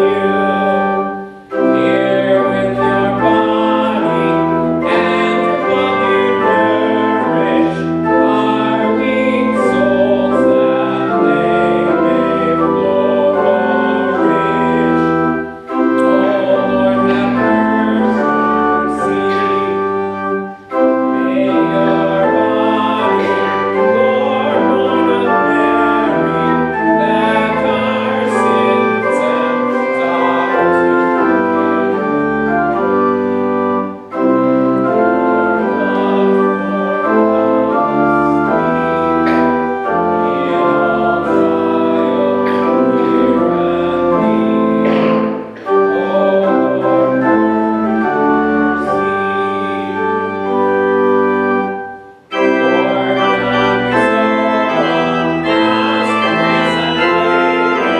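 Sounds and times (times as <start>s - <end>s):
organ playing sustained chords: 0.0s - 57.9s.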